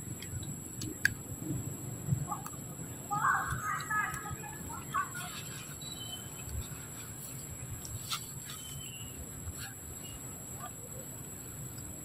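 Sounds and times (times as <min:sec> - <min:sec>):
high bird chirps: 0:04.9 - 0:06.4.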